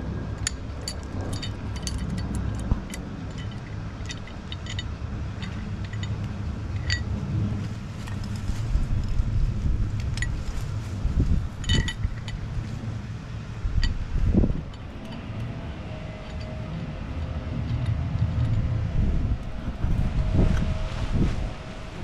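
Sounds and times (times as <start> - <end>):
light metallic clinks: 0.4 - 7.2, 11.5 - 12.7, 13.8 - 19.6
crane engine idling: 11.2 - 22.0.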